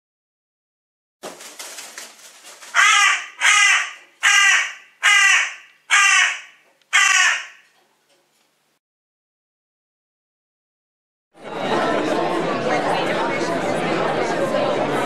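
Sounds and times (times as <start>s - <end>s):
faint rapid fluttering: 1.2s - 3.1s
crow cawing: 2.7s - 7.8s.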